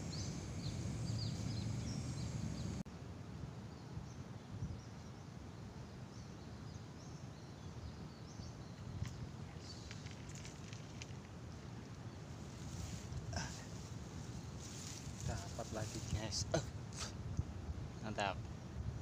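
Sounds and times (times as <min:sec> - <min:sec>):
low background rumble: 0:00.0 - 0:02.8
small birds chirping: 0:00.0 - 0:02.8.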